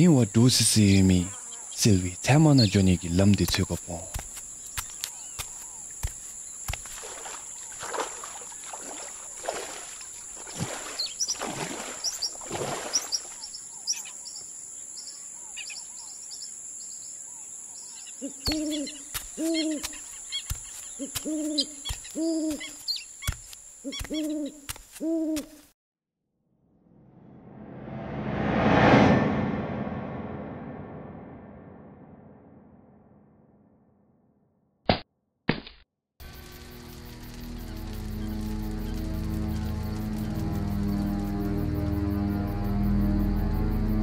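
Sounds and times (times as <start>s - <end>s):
owl hooting: 17.3s - 23.1s, 23.8s - 25.7s.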